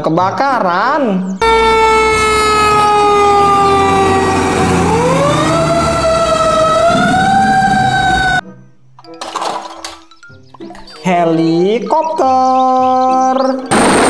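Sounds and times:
fire truck siren wailing: 1.4 - 8.4
truck engine rumble: 1.4 - 8.4.

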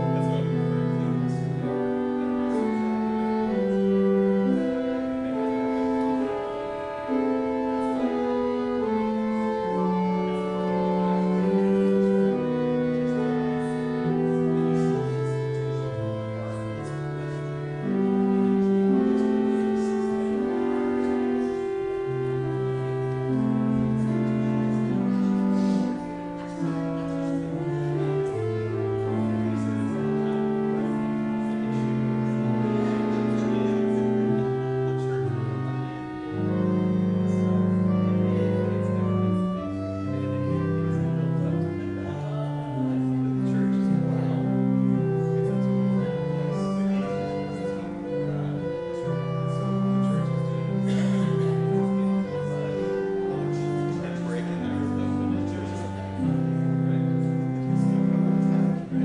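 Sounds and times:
slow organ prelude music: 0.0 - 59.0.

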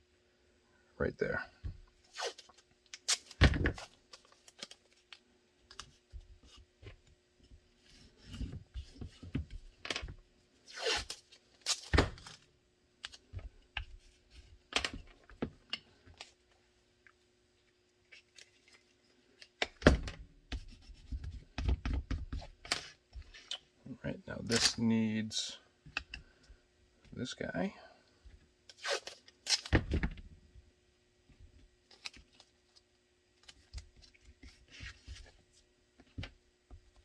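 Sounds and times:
tape tearing and crinkling: 2.1 - 5.2, 10.7 - 12.4, 28.7 - 29.8.

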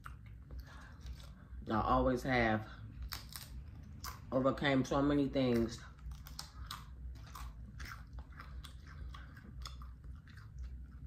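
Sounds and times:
person crunching tortilla chip: 3.0 - 4.3, 5.6 - 11.0.

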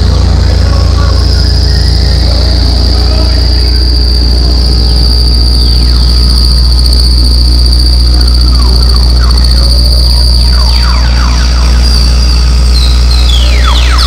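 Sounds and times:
high warbling whine: 0.0 - 14.0
low electronic drone: 0.0 - 14.0.

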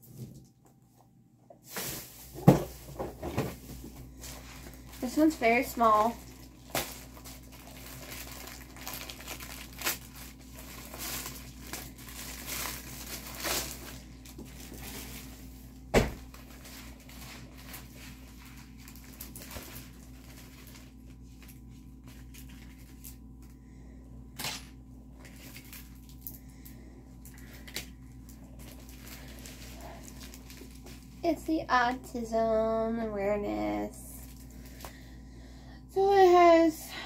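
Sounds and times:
packaging tearing and crinkling: 6.2 - 15.4, 16.2 - 23.2, 24.4 - 26.4, 27.2 - 31.2.

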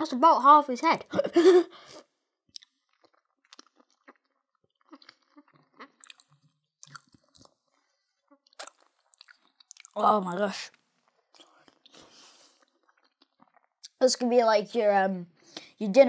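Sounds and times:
person chewing gummy sweet: 2.5 - 10.2, 11.0 - 14.0.

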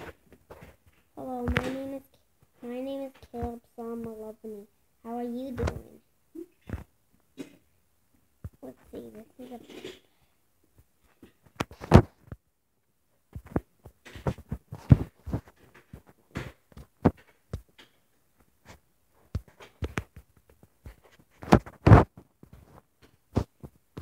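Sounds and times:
fingers tapping and rubbing phone: 0.0 - 2.0, 10.8 - 12.4, 13.3 - 24.0.

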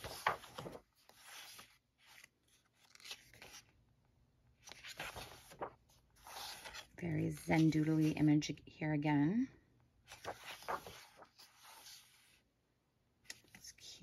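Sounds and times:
paper pages rustling: 0.0 - 3.8, 4.6 - 8.2, 10.1 - 12.4.

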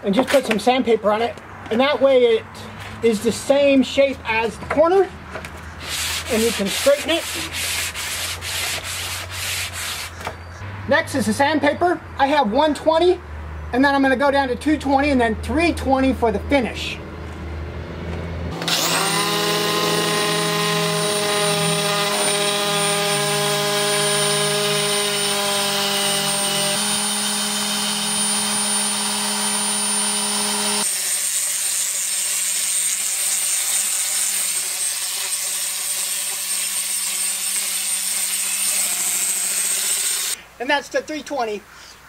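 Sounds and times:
orbit sander whining: 18.5 - 31.3.

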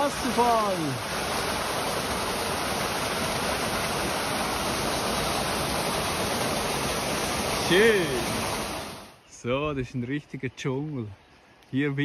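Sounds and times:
small waterfall splashing: 0.0 - 9.2.

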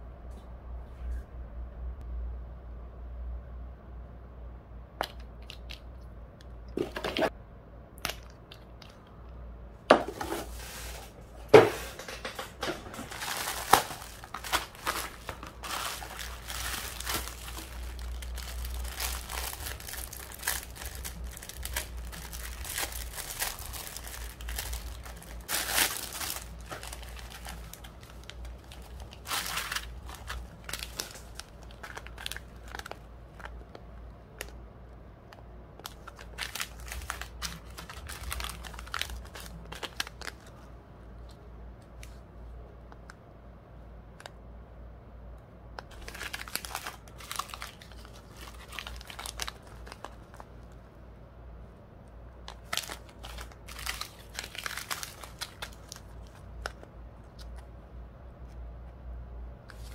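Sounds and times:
faint low hum: 0.0 - 59.9
bubble wrap crinkling: 10.0 - 11.5, 12.3 - 34.6, 35.8 - 40.7, 45.9 - 50.8, 52.4 - 57.6.

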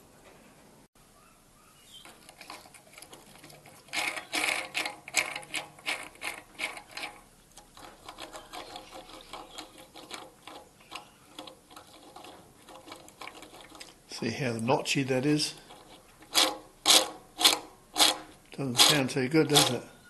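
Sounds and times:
ball bearings notchy rattle: 2.4 - 13.9, 15.6 - 19.8.

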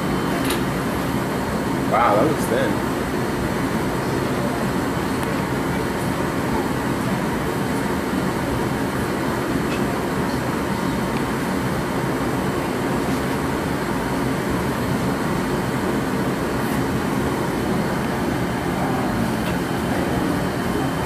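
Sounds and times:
gas burners rushing: 6.2 - 21.0.

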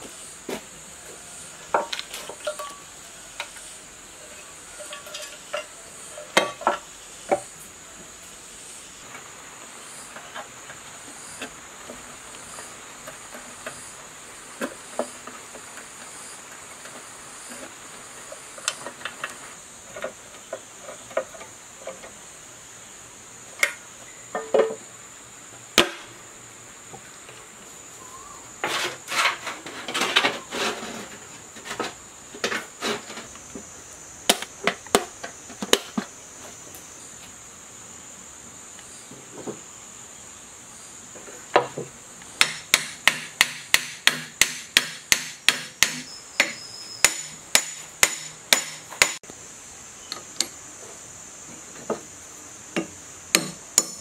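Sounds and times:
high-pitched insect drone: 45.8 - 48.8.

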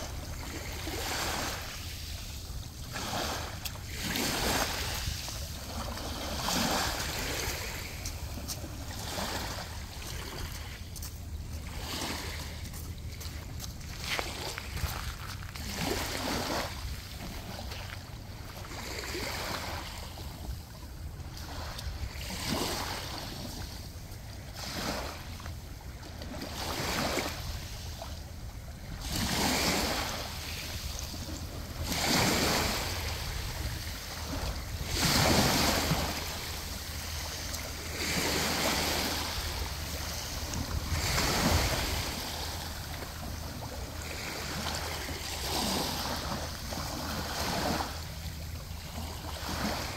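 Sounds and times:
waves washing onto pebbly shore: 0.0 - 18.0, 28.8 - 49.9.

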